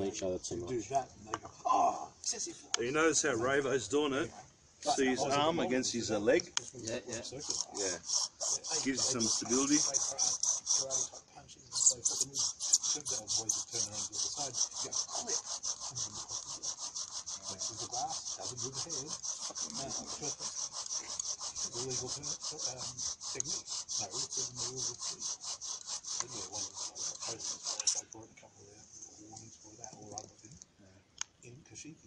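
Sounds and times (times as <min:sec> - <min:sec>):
wooden spindle grinding and squeaking: 0:05.0 - 0:28.2.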